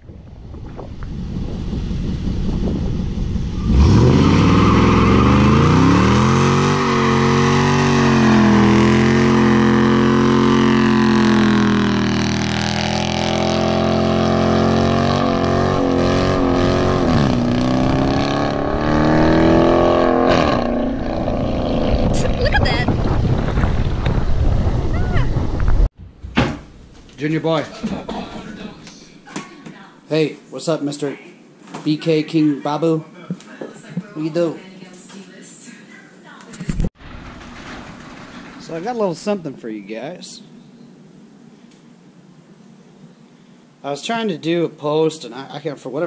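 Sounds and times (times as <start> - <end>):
car engine revving: 0.9 - 24.2.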